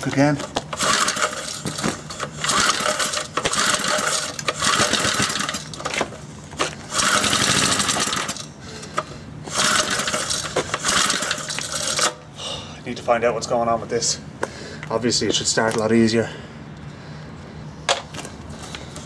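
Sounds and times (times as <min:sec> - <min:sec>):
small engine cranking and sputtering: 0:00.5 - 0:12.2.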